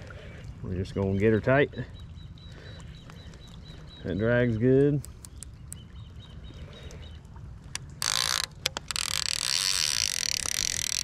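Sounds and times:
fishing reel ratcheting: 0:08.0 - 0:11.0.

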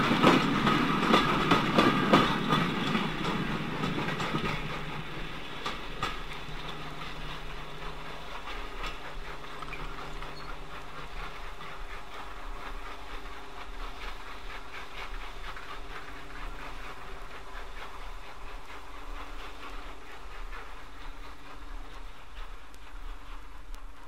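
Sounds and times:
steam train running: 0:00.0 - 0:24.0
train wheels clicking over rail joints: 0:00.0 - 0:24.0.

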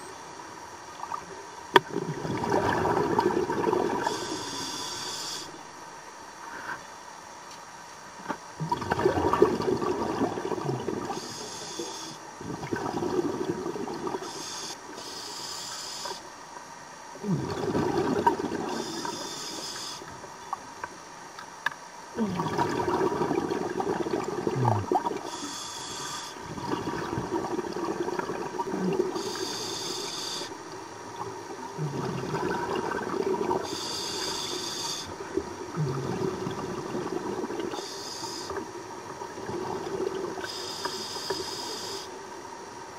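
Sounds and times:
exhaled bubbles rushing: 0:01.9 - 0:04.1, 0:08.6 - 0:11.2, 0:12.4 - 0:14.2, 0:17.2 - 0:18.8, 0:22.2 - 0:25.3, 0:26.4 - 0:29.4, 0:31.2 - 0:33.7, 0:35.3 - 0:37.8
regulator inhale hiss: 0:04.0 - 0:05.6, 0:11.1 - 0:12.2, 0:14.2 - 0:16.3, 0:18.7 - 0:20.1, 0:25.2 - 0:26.4, 0:29.1 - 0:30.6, 0:33.6 - 0:35.2, 0:37.7 - 0:38.6, 0:40.4 - 0:42.2.

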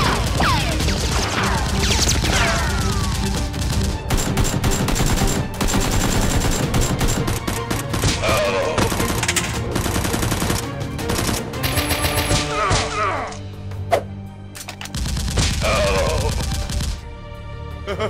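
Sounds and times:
background music: 0:00.0 - 0:18.0
automatic gunfire bursts: 0:03.0 - 0:07.4.

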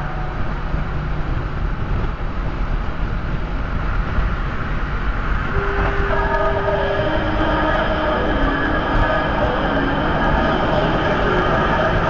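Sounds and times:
car road and wind noise: 0:00.0 - 0:12.0
steady pitched tone: 0:05.5 - 0:12.0.

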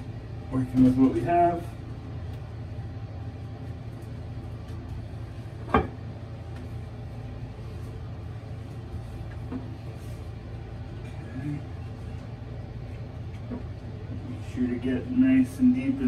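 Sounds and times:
wiping toilet with wipes: 0:06.5 - 0:11.0.

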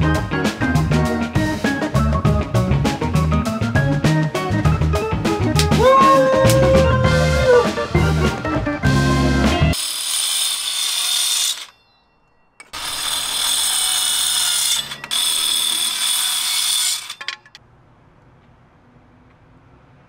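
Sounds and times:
power drill driving screws: 0:09.7 - 0:11.8, 0:12.6 - 0:17.6.

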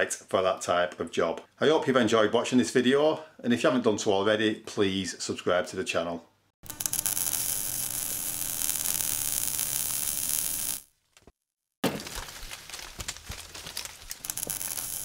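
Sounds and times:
crackling hiss: 0:06.6 - 0:10.9, 0:14.2 - 0:15.0.

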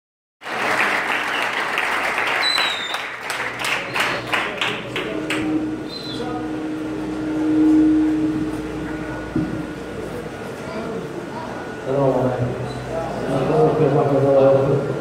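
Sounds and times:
audience applauding: 0:00.4 - 0:05.5
steady low hum: 0:03.2 - 0:15.0.

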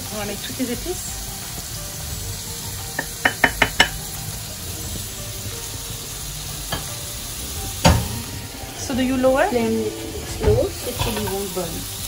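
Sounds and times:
onions sizzling in oil: 0:00.0 - 0:12.0
spoon tapping pan: 0:03.0 - 0:04.1.

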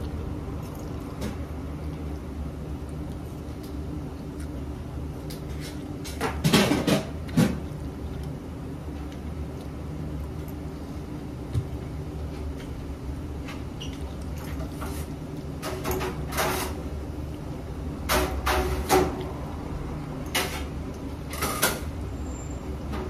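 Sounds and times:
low machine hum: 0:00.0 - 0:23.0.

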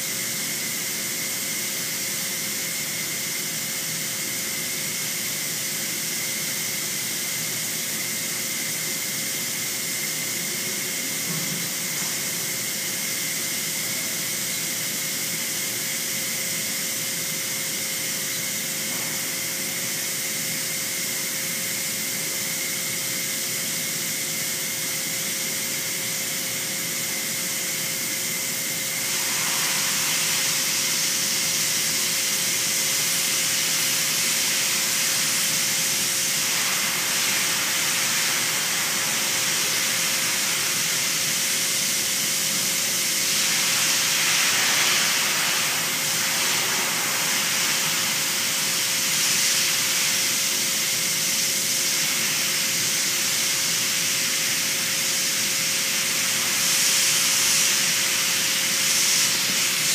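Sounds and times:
air hissing from a tire: 0:24.9 - 0:59.9.

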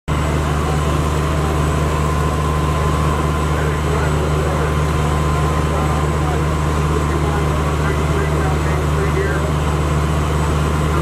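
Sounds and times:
fire engine running water pump: 0:00.1 - 0:11.0.

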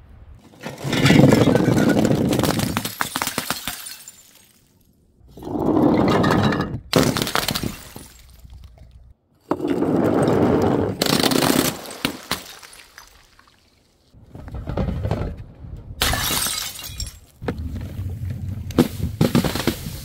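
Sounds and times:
glass bottles shattering: 0:00.8 - 0:04.7, 0:06.0 - 0:08.6, 0:16.0 - 0:17.4.

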